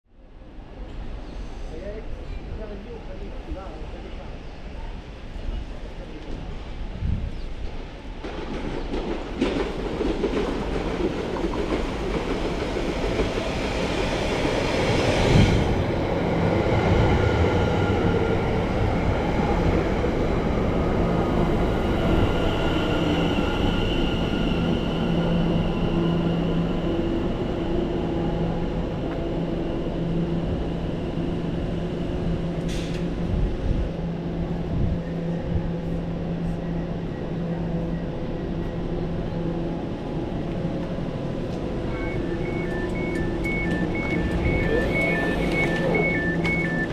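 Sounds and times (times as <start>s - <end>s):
electric train arriving: 0.5s - 46.9s.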